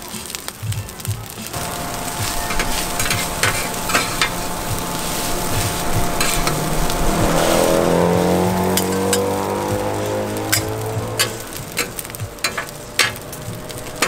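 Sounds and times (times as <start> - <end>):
food sizzling in a pan: 0.0 - 14.0
passing vehicle engine: 1.5 - 14.0
metal utensil clicking on pan: 8.7 - 9.4, 10.5 - 14.0.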